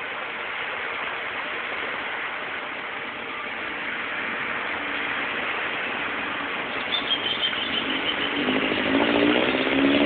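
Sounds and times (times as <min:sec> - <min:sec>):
tyres splashing through water: 0:00.0 - 0:10.0
vehicle engine approaching: 0:03.7 - 0:10.0.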